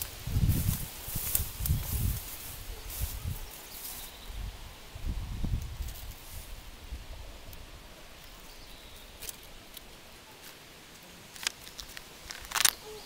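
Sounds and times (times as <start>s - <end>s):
clicks and rustles of handling: 9.2s - 12.8s.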